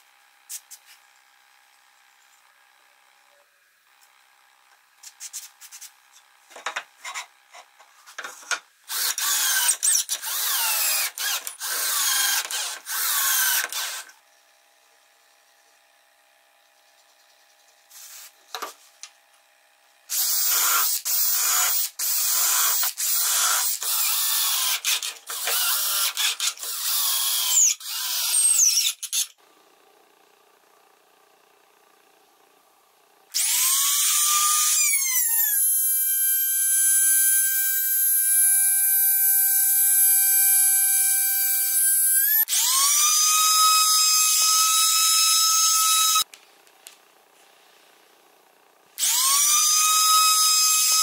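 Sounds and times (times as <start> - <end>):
cordless drill driving into wood: 8.9 - 14.2, 20.1 - 29.4, 33.3 - 46.3.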